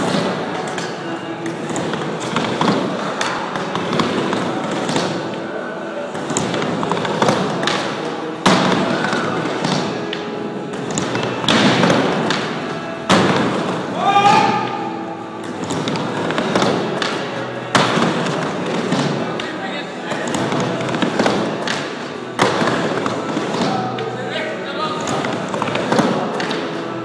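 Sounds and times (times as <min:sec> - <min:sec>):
loud skateboard slams: 0:10.9 - 0:14.7.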